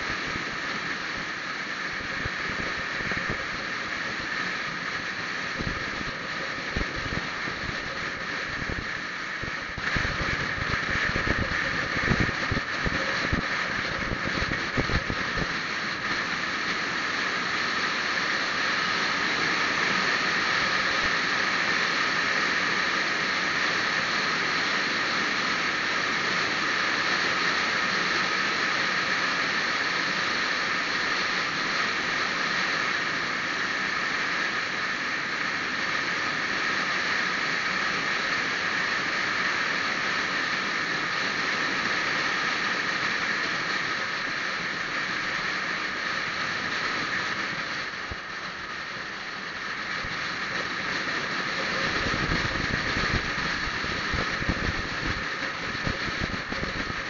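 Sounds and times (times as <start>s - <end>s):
wind and road noise from vehicle: 0.0s - 19.1s, 47.1s - 57.0s.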